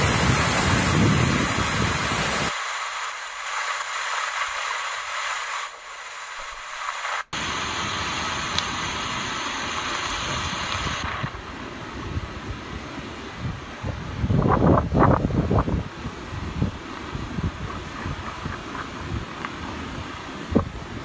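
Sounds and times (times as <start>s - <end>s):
floodwater rushing through spillway: 0.0s - 14.3s.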